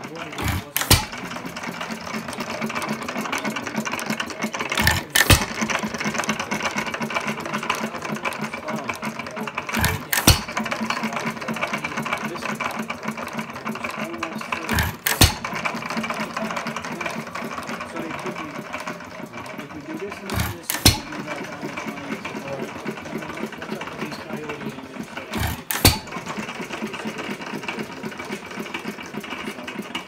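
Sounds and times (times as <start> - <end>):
valve gear clicking: 0.0 - 30.0
engine firing bangs: 0.3 - 7.9, 9.7 - 11.0, 13.9 - 19.4, 20.1 - 28.4.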